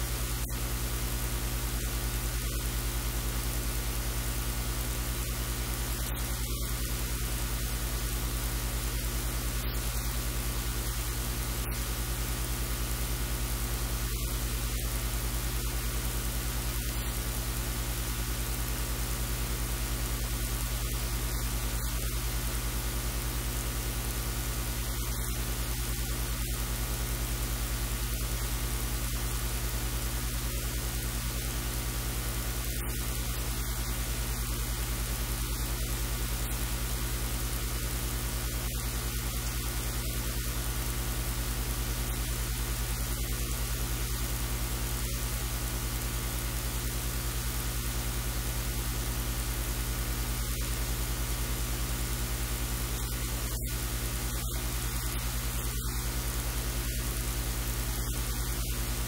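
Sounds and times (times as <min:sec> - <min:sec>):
low electrical hum: 0:00.0 - 0:59.0
steady hiss: 0:00.0 - 0:59.0.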